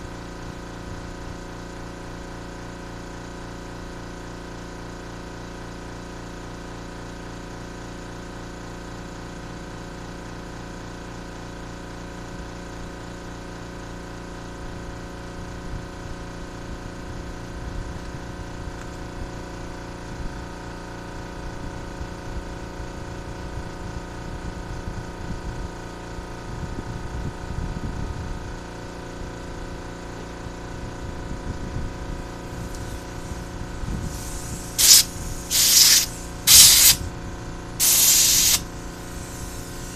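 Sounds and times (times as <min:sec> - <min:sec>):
steady machine hum: 0:16.0 - 0:39.9
spray hiss: 0:32.5 - 0:37.1, 0:37.8 - 0:39.9.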